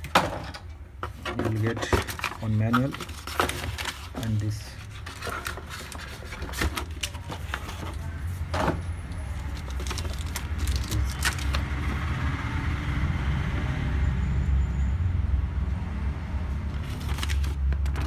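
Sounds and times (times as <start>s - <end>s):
packaging rustling: 1.0s - 8.2s, 9.3s - 11.9s, 16.8s - 18.0s.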